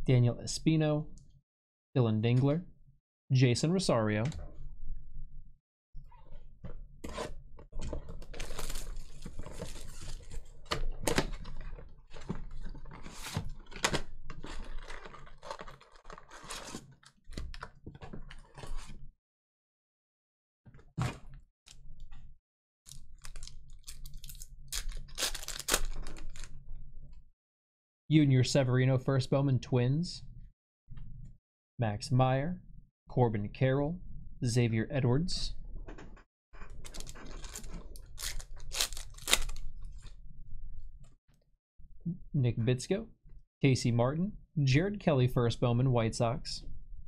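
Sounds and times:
wrappers crinkling: 8.3s - 10.7s, 12.4s - 17.1s, 22.9s - 26.5s, 36.8s - 39.7s.

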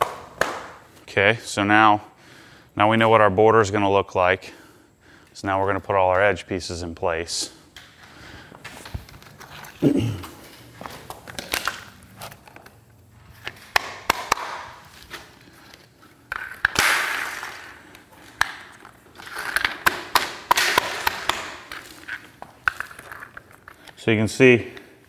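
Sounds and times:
plastic floor tiles clicking: 16.2s - 24.0s.

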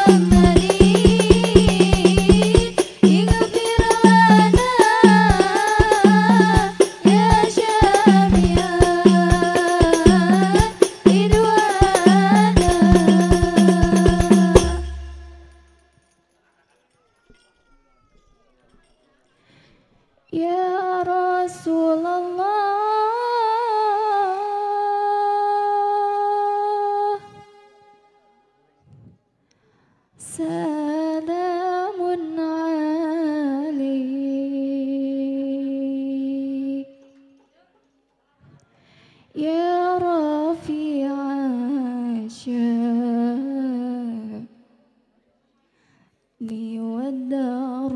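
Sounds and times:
woman singing unaccompanied: 0.0s - 15.8s, 20.3s - 27.5s, 30.2s - 37.2s, 39.4s - 44.6s, 46.4s - 47.9s.

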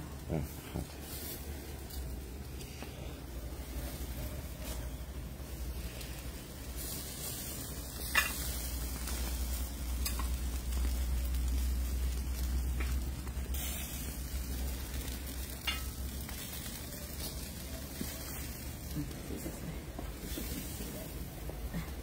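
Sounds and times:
chicken sizzling on grill: 0.0s - 22.0s
fire crackling pops: 0.0s - 22.0s.

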